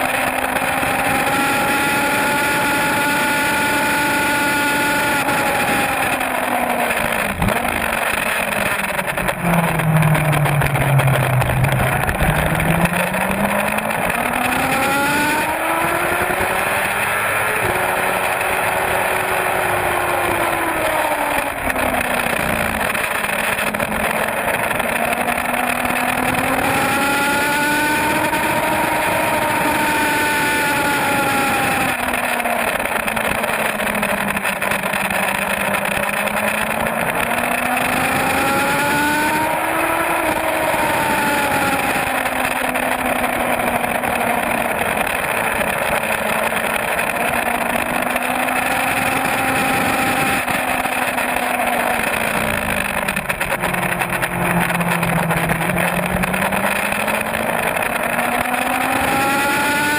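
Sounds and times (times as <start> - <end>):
motorcycle engine at speed: 0.0 - 59.9
wind rush: 7.2 - 15.8.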